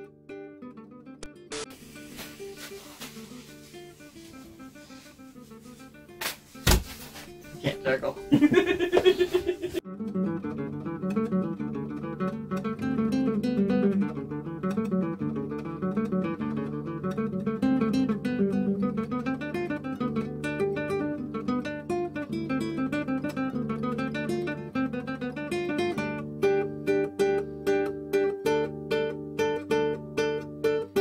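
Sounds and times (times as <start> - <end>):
acoustic guitar plucking: 0.0 - 31.0.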